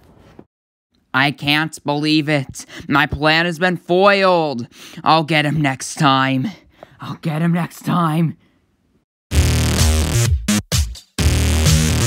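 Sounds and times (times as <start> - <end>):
electronic music with bass beat: 9.3 - 12.0.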